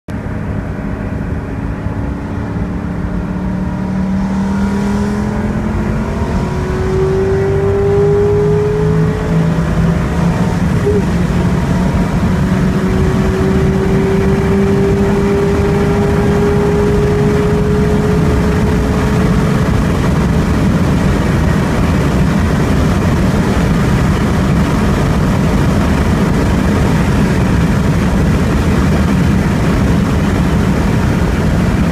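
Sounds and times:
car engine at full throttle: 0.1 - 31.9
wind and road noise: 0.1 - 31.9.

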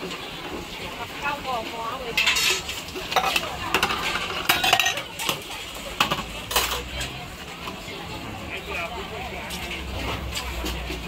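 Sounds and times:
water boiling: 0.0 - 11.0
metal ladle clanking on pot: 2.1 - 7.1.

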